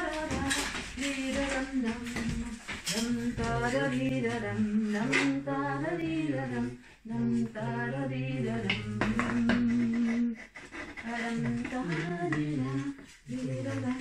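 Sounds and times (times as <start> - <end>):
man and woman singing wordlessly: 0.0 - 14.0.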